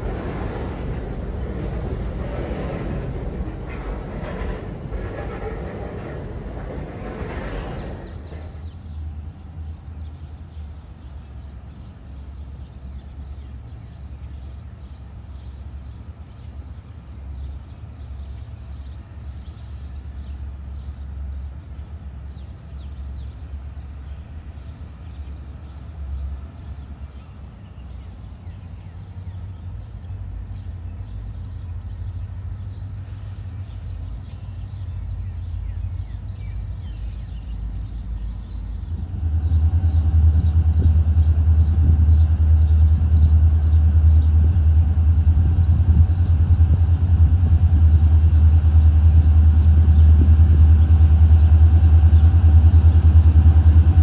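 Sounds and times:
train wheels clattering on bridge: 0:00.0 - 0:08.8
diesel locomotive engine rumble: 0:00.0 - 0:54.0.

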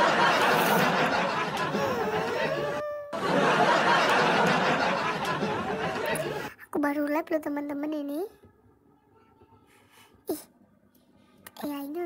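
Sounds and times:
crowd laughing and chattering: 0:00.0 - 0:06.5.

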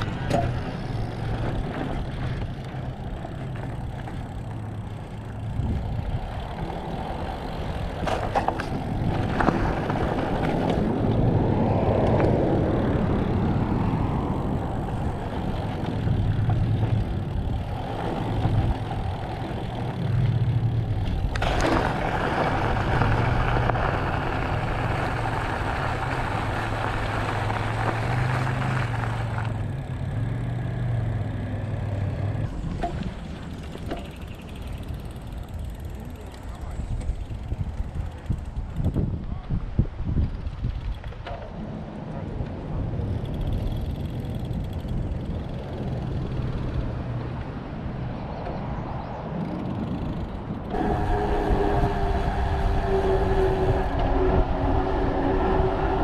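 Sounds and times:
bike tyres rumbling over rock: 0:00.0 - 0:30.1, 0:32.4 - 0:41.8
bike clicks and rattles: 0:00.0 - 0:30.7, 0:31.9 - 0:51.1.

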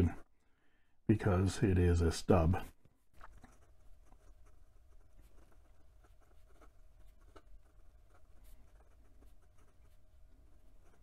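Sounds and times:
pen nib scratching on paper: 0:03.2 - 0:11.0.

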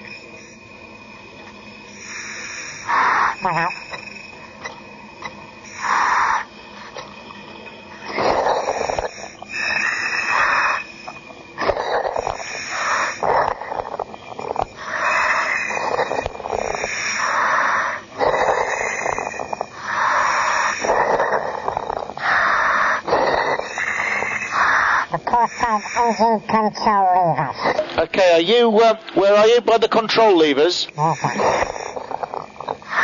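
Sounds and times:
diver breathing through apparatus: 0:01.8 - 0:04.3, 0:05.6 - 0:26.4, 0:31.0 - 0:33.0.

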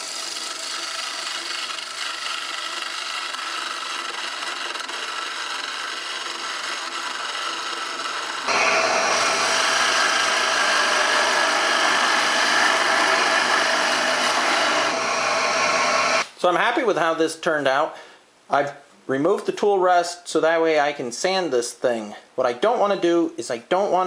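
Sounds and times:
saw motor spinning: 0:00.0 - 0:16.3
turning tool cutting wood: 0:00.0 - 0:16.3.

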